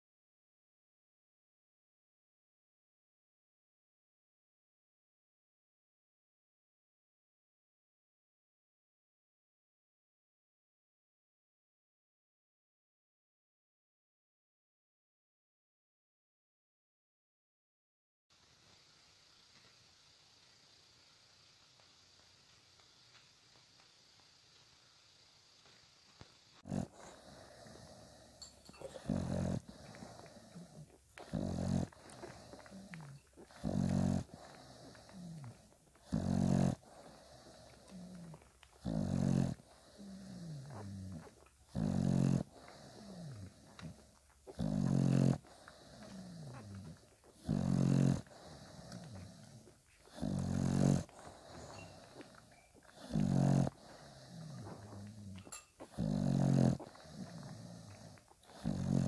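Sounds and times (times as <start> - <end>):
dog snoring: 26.6 - 59.0
soft squeaky breathing sounds: 26.8 - 59.0.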